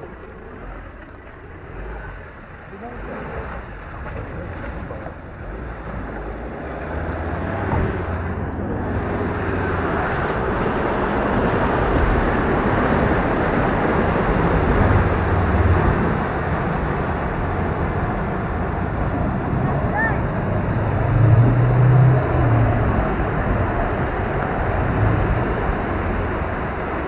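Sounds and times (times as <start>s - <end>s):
muddy water splashing: 0.0s - 27.0s
truck engine under load: 0.0s - 27.0s.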